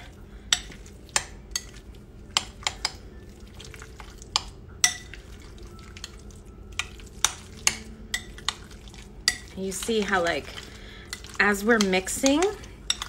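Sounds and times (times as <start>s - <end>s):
spoon stirring soft mixture: 0.0s - 13.0s
spoon clinking against glass bowl: 4.3s - 10.2s, 11.1s - 13.0s.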